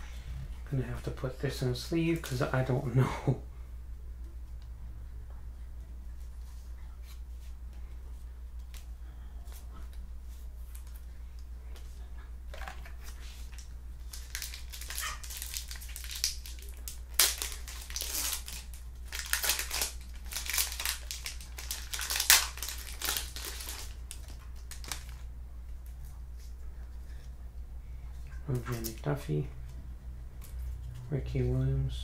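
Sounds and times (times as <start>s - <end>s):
steady low hum: 0.0s - 32.0s
foil wrapper crinkling and tearing: 12.6s - 25.3s.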